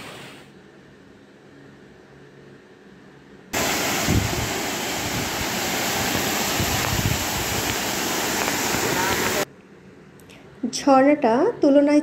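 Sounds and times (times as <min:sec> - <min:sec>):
wind buffeting microphone: 0:03.6 - 0:09.4
waterfall pouring over rocks: 0:03.6 - 0:09.5.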